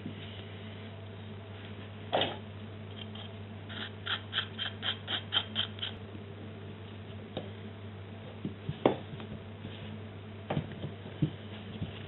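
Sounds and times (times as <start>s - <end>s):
tool scraping plaster: 3.2s - 6.0s.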